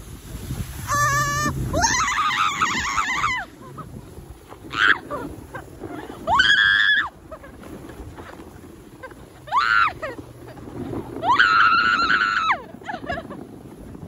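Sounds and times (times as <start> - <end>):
sled riding through snow: 0.0 - 14.0
people squealing: 0.9 - 3.8, 4.6 - 5.3, 6.2 - 7.4, 9.4 - 10.2, 11.2 - 13.0.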